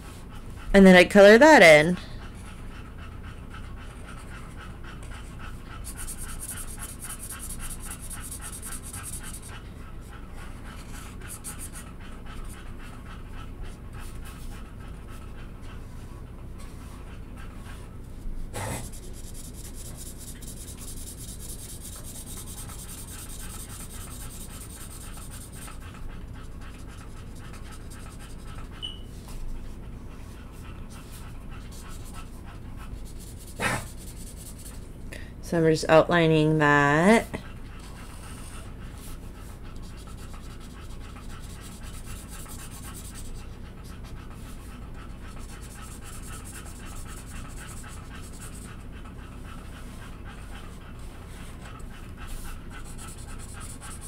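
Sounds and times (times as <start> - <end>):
dog panting: 0.0 - 54.0
marker rubbing on paper: 5.8 - 9.5, 10.8 - 11.8, 18.6 - 25.8, 33.0 - 34.8, 39.8 - 43.3, 45.4 - 48.6, 52.3 - 54.0.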